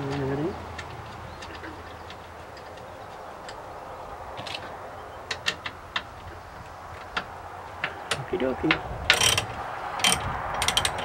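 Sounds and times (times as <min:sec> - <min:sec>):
ratchet wrench clicking: 0:09.1 - 0:11.0.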